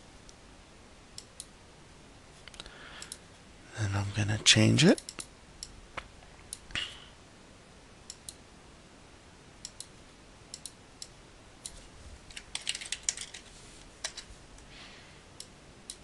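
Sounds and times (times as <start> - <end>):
keyboard typing: 12.3 - 14.2.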